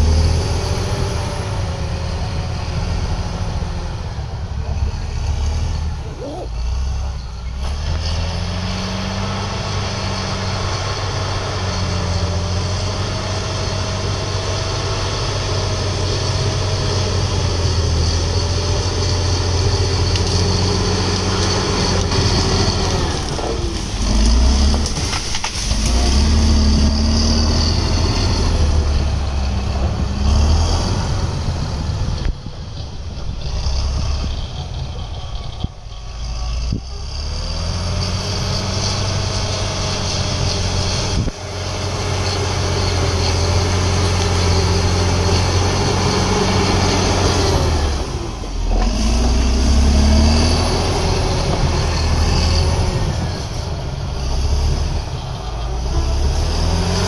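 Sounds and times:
bulldozer diesel engine under load: 0.0s - 57.0s.

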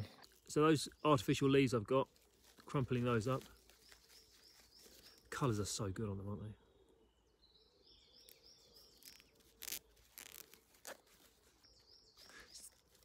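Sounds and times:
artificial leaves crinkling: 2.0s - 5.5s, 8.2s - 13.0s
bird chirping: 2.7s - 13.0s.

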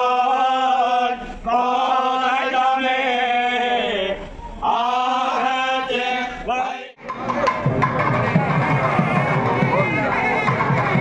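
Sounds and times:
male voices chanting a hymn: 8.0s - 11.0s.

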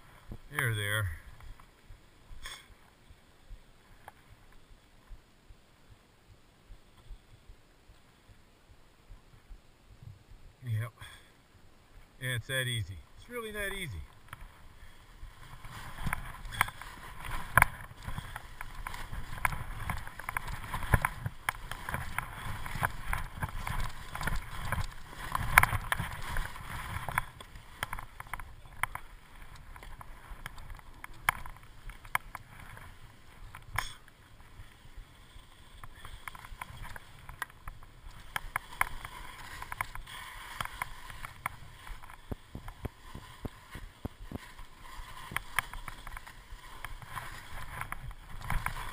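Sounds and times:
skis scraping over snow: 12.3s - 48.9s.

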